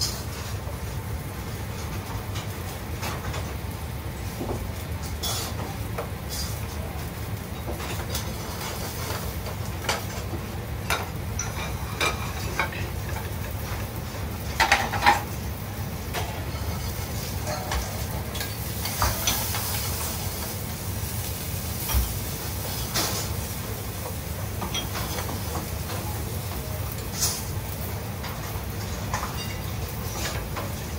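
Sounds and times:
food sizzling in pans: 0:00.0 - 0:30.9
metal clinking on pans: 0:10.9 - 0:13.6, 0:14.5 - 0:15.4, 0:16.1 - 0:20.1, 0:24.6 - 0:26.2, 0:28.2 - 0:30.9.

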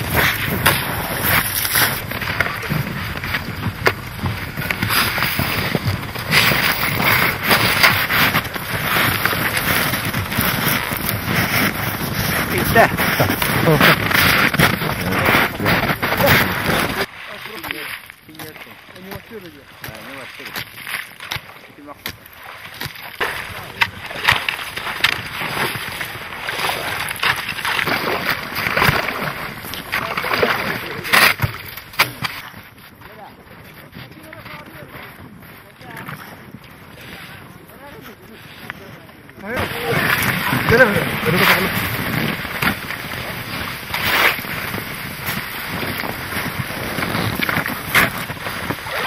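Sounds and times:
snow and ice slush crunching: 0:00.0 - 0:49.0.

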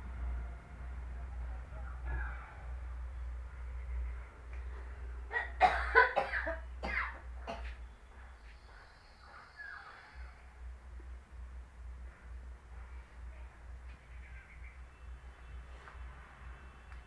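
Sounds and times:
low steady hum: 0:00.0 - 0:17.0
person coughing: 0:05.3 - 0:07.7.

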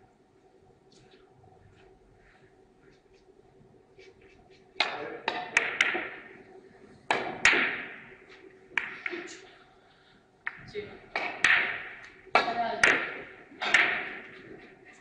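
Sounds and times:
billiard balls clicking: 0:04.2 - 0:06.4, 0:07.1 - 0:09.4, 0:10.4 - 0:14.8
cue tip striking ball: 0:04.8 - 0:06.4, 0:07.1 - 0:09.2, 0:11.2 - 0:12.1, 0:12.8 - 0:14.4.

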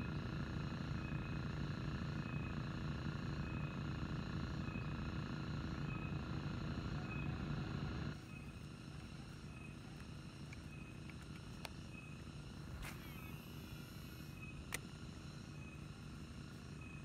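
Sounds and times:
fishing reel whirring: 0:12.6 - 0:14.8.

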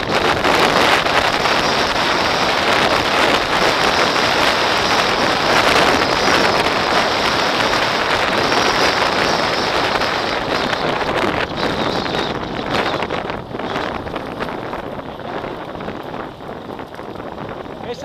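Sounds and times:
bike tyres crunching on gravel: 0:00.0 - 0:18.0
wind buffeting microphone: 0:00.0 - 0:18.0.

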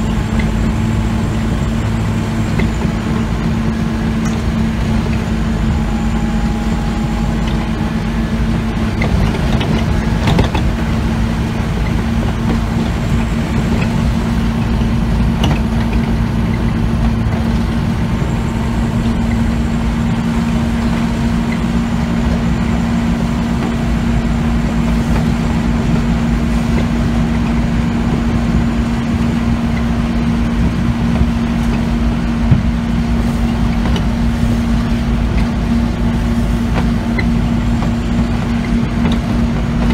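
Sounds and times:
bus diesel engine hum: 0:00.0 - 0:39.9
low road rumble: 0:00.0 - 0:39.9
sharp knocks and rattles: 0:08.9 - 0:17.6.

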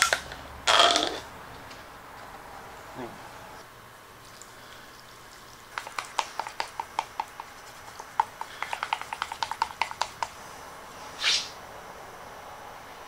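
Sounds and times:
stick tapping metal cup: 0:05.7 - 0:10.4.

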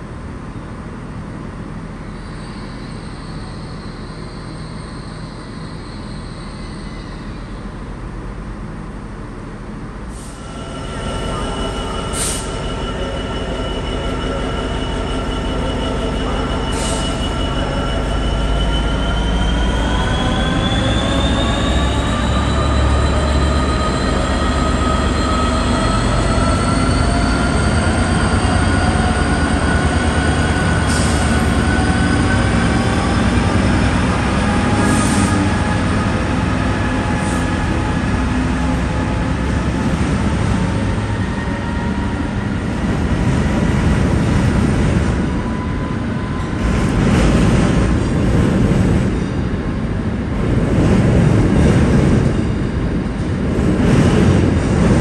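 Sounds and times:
steady railway rumble: 0:00.0 - 0:55.0
diesel locomotive engine pulling away: 0:00.1 - 0:55.0.

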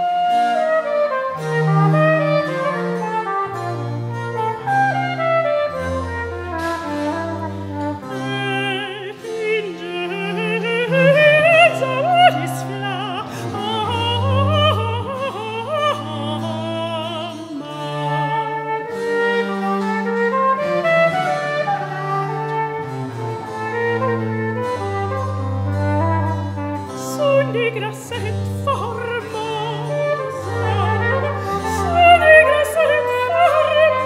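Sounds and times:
bowed cello bass notes: 0:00.0 - 0:34.0
cornett playing: 0:00.0 - 0:34.0
soprano singing with vibrato: 0:08.0 - 0:18.9, 0:27.0 - 0:34.0.

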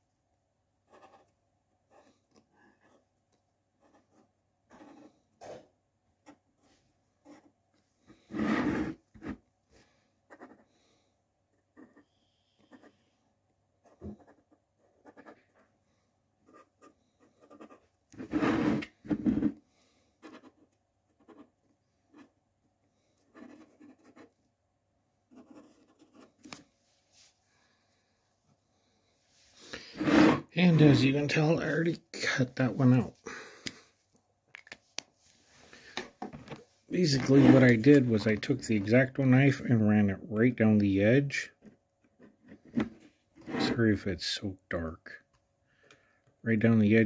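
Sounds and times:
marker scratching on plastic: 0:00.9 - 0:01.3, 0:03.8 - 0:05.1, 0:06.2 - 0:07.5, 0:11.6 - 0:13.0, 0:13.8 - 0:15.7, 0:16.4 - 0:19.5, 0:20.2 - 0:22.3, 0:23.2 - 0:24.4, 0:25.3 - 0:26.6.

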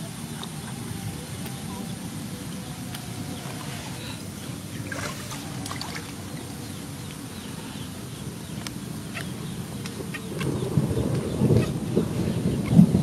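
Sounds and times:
shallow water lapping and trickling: 0:00.0 - 0:07.9
steady low rumble: 0:00.0 - 0:13.0.

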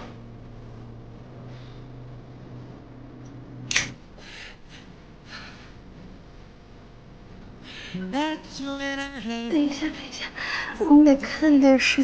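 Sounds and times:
sharp click: 0:03.2 - 0:04.0
sung background song: 0:07.8 - 0:10.0.

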